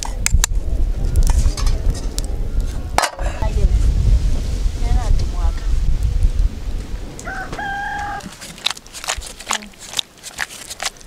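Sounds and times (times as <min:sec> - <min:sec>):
rooster crowing: 0:07.2 - 0:08.3.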